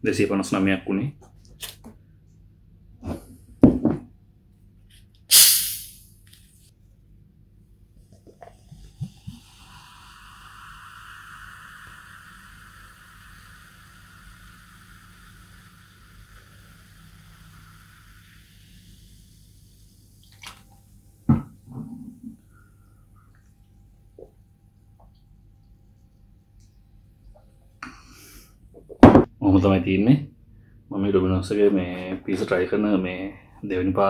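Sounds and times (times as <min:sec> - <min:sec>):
bottle opening hiss: 0:05.3 - 0:06.2, 0:08.4 - 0:20.6
cola pouring and fizzing: 0:08.0 - 0:21.0.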